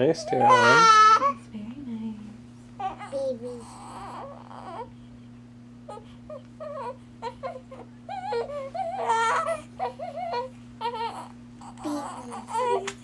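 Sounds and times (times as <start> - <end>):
newborn baby crying: 0.2 - 1.4, 2.8 - 4.9, 5.9 - 12.9.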